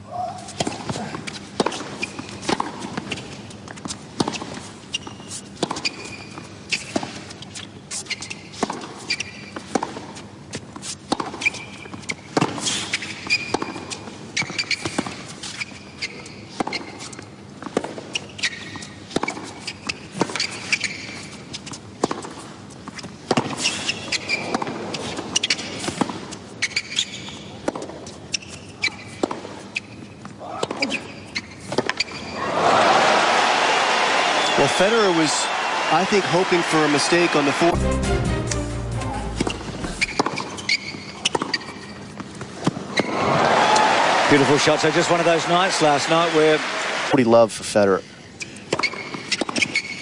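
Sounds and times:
tennis shoes squeaking: 0.1s - 32.4s, 39.1s - 43.2s, 48.2s - 50.0s
racquets hitting tennis ball: 0.5s - 4.6s.

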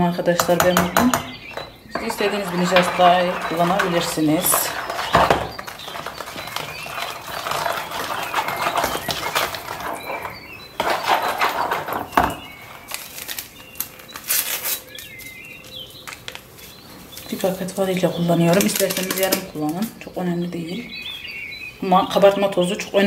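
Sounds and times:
whisk clicking and scraping bowl: 0.4s - 12.5s.

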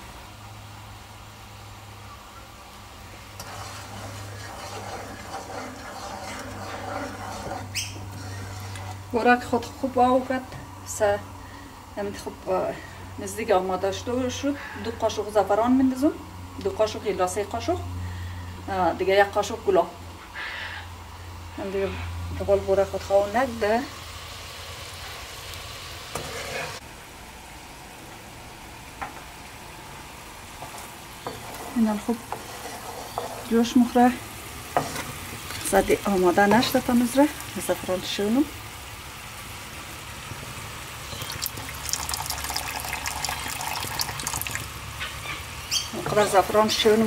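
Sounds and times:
syrup boiling in a pot: 2.9s - 10.0s, 31.3s - 33.7s, 35.5s - 44.9s
syrup bubbling: 3.4s - 9.0s, 41.1s - 44.8s
wooden spoon scraping pot: 3.4s - 9.2s, 26.1s - 26.8s, 30.6s - 33.7s.

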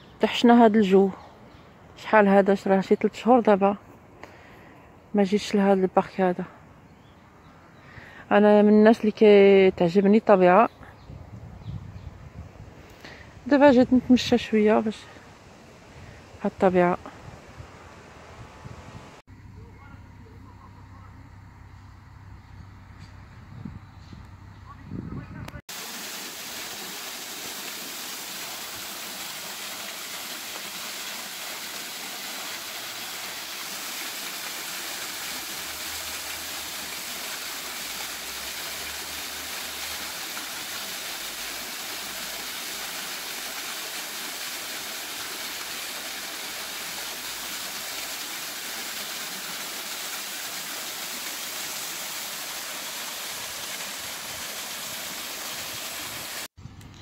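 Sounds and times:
fountain water splashing on grate: 25.7s - 56.5s.

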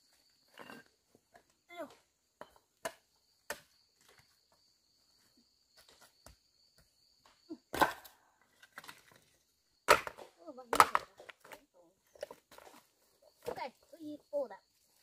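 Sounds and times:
knocks and scrapes of debris: 7.8s - 13.6s.

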